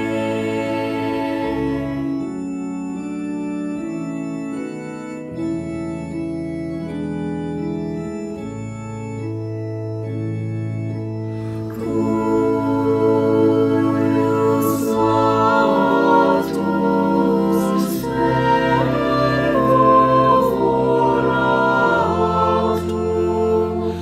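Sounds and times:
choir singing: 0.0 - 2.6, 11.7 - 24.0
electronic organ chords: 0.0 - 24.0.

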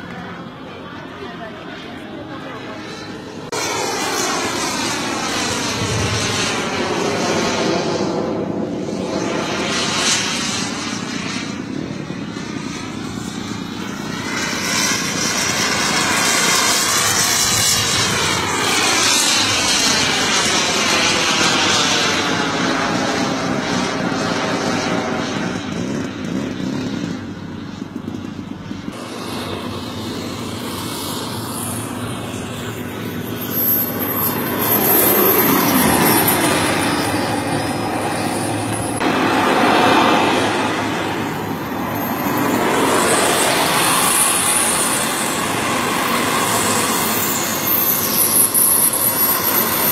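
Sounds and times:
model jet engine whine: 0.0 - 49.9.

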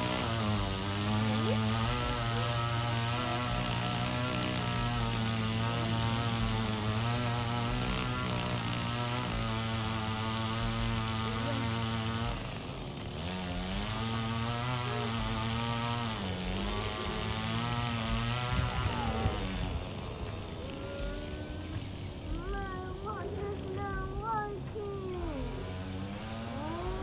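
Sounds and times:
lawn mower running: 0.0 - 27.0.

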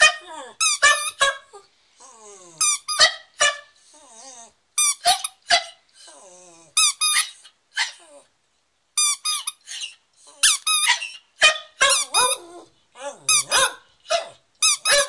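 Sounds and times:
squeaky toy squeaking: 0.0 - 1.5, 2.6 - 3.7, 4.8 - 5.8, 6.8 - 8.0, 9.0 - 12.6, 13.3 - 15.0
dog howling: 12.0 - 15.0.

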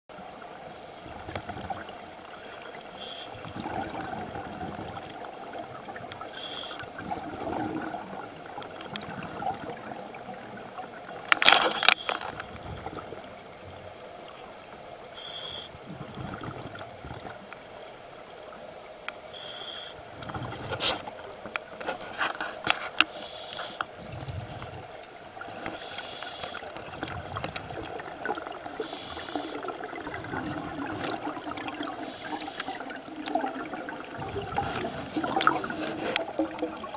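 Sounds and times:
regulator inhalation hiss: 2.9 - 3.4, 6.3 - 6.9, 15.2 - 15.8, 19.3 - 20.0, 23.1 - 23.9, 25.8 - 26.7, 28.7 - 29.6, 32.0 - 33.0, 34.8 - 36.2
bubbling exhalations: 3.3 - 10.4, 11.4 - 13.3, 15.8 - 17.4, 20.1 - 21.1, 23.9 - 36.9.

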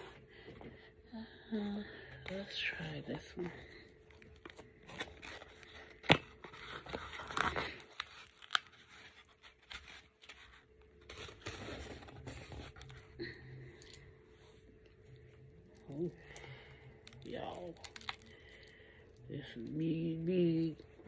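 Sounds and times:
paper rustling and scraping: 4.4 - 13.1.

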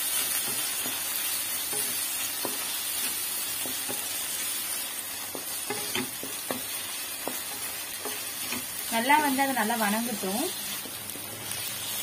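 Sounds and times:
vegetables sizzling in hot oil: 0.0 - 12.0
spatula scraping a pan: 5.2 - 8.8.

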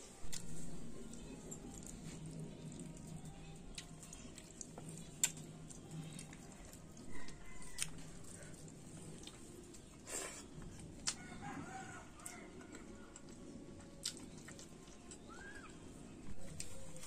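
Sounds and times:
rooster crowing: 7.0 - 8.6, 11.1 - 13.1.

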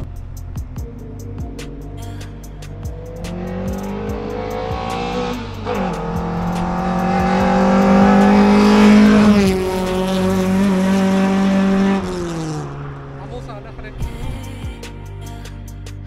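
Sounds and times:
car engine revving past: 2.6 - 14.0.

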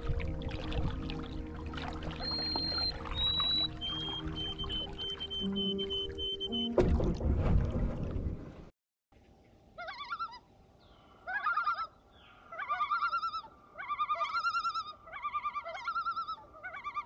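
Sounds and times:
loon tremolo calls: 2.2 - 6.6.

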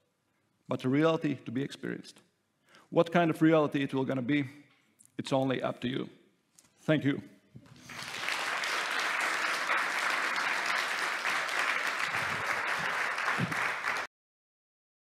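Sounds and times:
audience applauding: 7.7 - 14.1.

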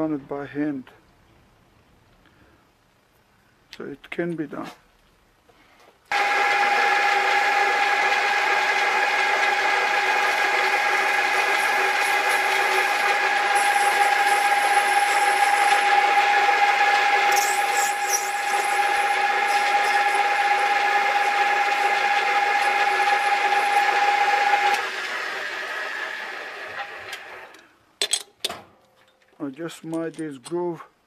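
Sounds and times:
metal lathe gear whine: 6.1 - 27.5.

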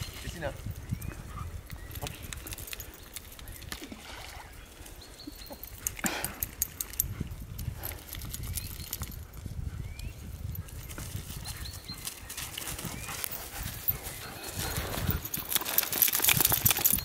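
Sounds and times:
paws thudding on grass: 10.5 - 17.0.

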